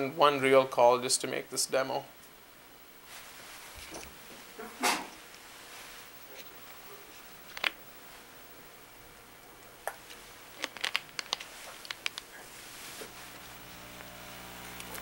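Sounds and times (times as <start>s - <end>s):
faint steady hum: 0.0s - 15.0s
room hiss: 0.0s - 15.0s
sharp clicks and crinkles: 6.2s - 7.8s, 9.8s - 12.4s.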